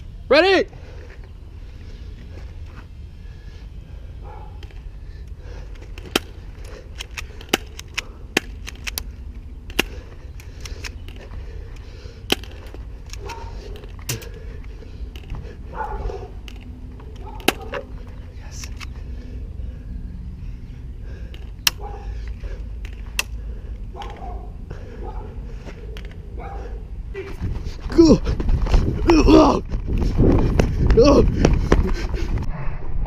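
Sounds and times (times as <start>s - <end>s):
bb gun shots cracking: 17.2s - 17.8s
wind rumble on microphone: 27.2s - 33.0s.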